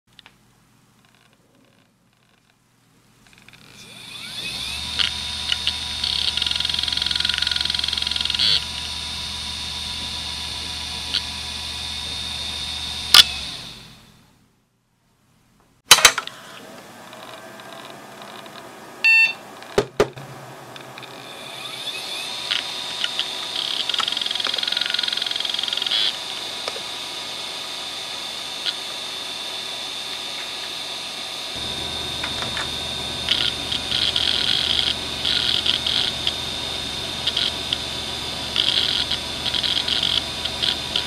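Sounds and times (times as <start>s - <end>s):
hard drive spinning whine: 3.3s - 14.5s, 16.3s - 41.0s
hard drive clicks: 4.4s - 9.0s, 10.0s - 11.4s, 22.4s - 26.9s, 31.6s - 41.0s.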